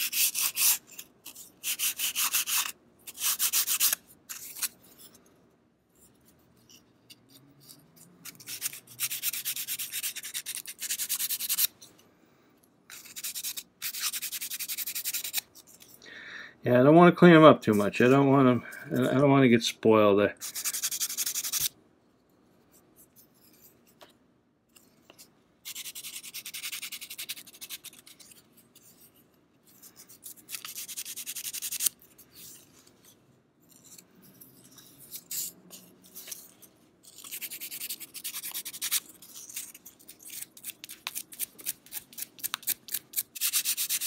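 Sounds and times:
sandpaper rubbing on wood: 0:00.0 - 0:00.8, 0:01.6 - 0:04.0, 0:08.4 - 0:11.7, 0:20.4 - 0:21.7, 0:43.4 - 0:44.0.

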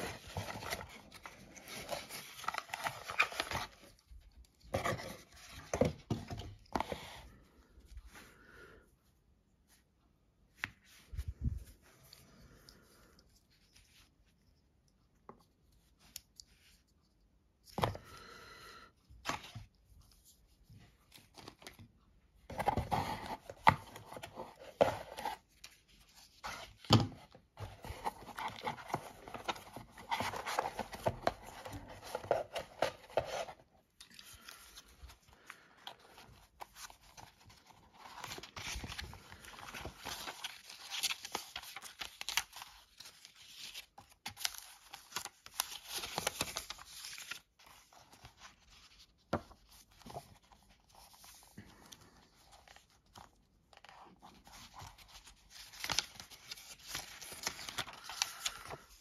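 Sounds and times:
pages being leafed through: 0:00.0 - 0:07.1, 0:27.6 - 0:59.0
paper and cardboard rustling: 0:00.0 - 0:07.4, 0:19.2 - 0:59.0.

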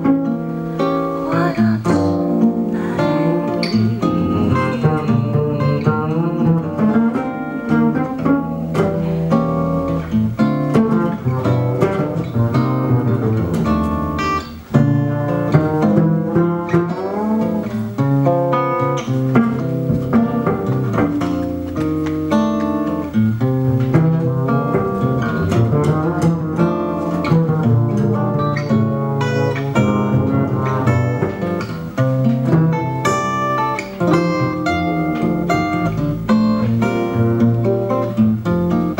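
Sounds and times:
acoustic guitar jazz melody: 0:00.0 - 0:38.9
plucked double bass: 0:00.0 - 0:38.9.

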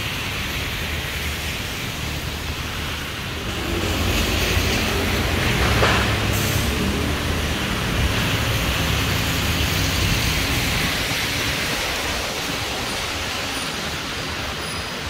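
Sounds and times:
rain hissing: 0:00.0 - 0:15.0
traffic on wet road: 0:00.0 - 0:15.0.

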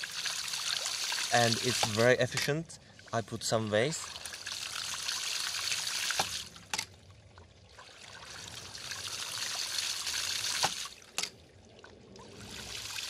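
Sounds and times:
water rushing out of valve: 0:00.0 - 0:02.5.

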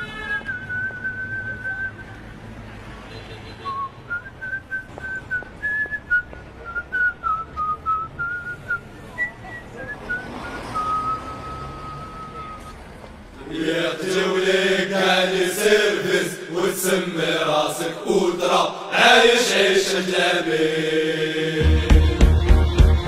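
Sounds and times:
whistled melody: 0:00.4 - 0:02.2, 0:03.7 - 0:12.8.

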